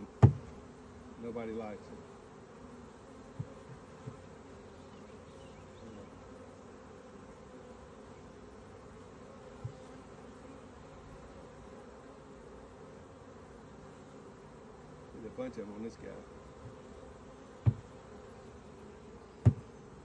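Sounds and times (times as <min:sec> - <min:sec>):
honeybees buzzing: 0:00.0 - 0:20.0
light knocks: 0:17.6 - 0:17.9, 0:19.4 - 0:19.7.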